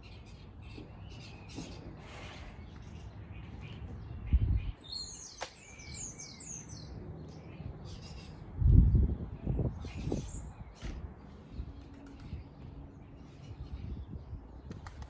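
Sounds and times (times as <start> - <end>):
birds chirping and singing: 0.0 - 15.0.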